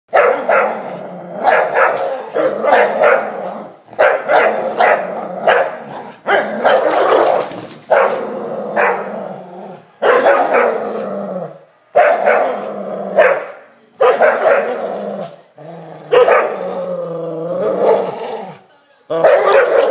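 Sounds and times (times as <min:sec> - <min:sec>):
dogs barking sharply: 0:00.1 - 0:08.2, 0:08.8 - 0:09.1, 0:10.0 - 0:10.8, 0:11.9 - 0:14.8, 0:16.1 - 0:16.6, 0:19.2 - 0:19.9
dogs growling: 0:00.1 - 0:19.9.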